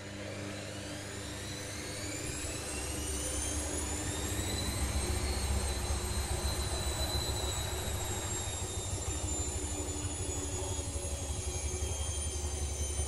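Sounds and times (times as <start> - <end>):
washing machine motor whine: 0.0 - 13.0.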